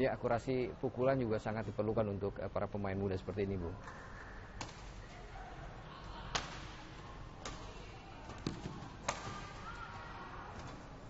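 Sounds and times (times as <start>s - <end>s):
racket hitting shuttlecock: 4.6s - 4.9s, 6.3s - 6.8s, 7.4s - 9.8s.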